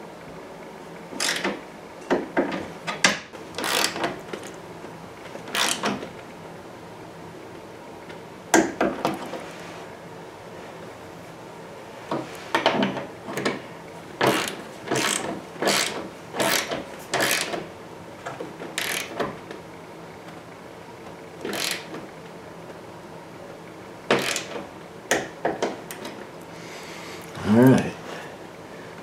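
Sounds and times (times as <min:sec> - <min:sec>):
socket ratchet wrench clicking: 0:01.2 - 0:01.5, 0:03.6 - 0:04.0, 0:05.5 - 0:05.9, 0:14.3 - 0:17.6, 0:18.8 - 0:19.2, 0:21.5 - 0:21.9, 0:24.2 - 0:24.6.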